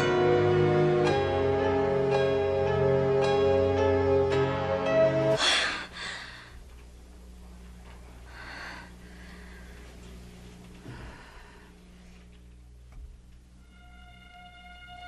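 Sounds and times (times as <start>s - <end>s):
low steady hum: 0.0s - 15.0s
person breathing: 5.4s - 6.6s, 8.2s - 10.2s, 10.8s - 12.3s.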